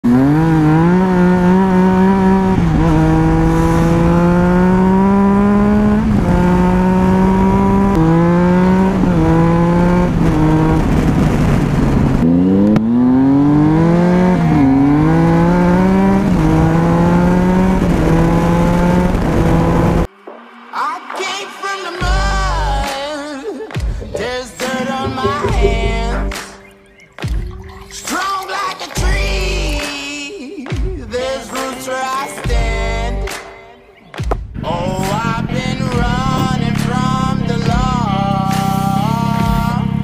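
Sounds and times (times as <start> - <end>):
motorcycle engine revving: 0.0 - 20.1, 34.2 - 40.0
wind rush: 8.8 - 12.6.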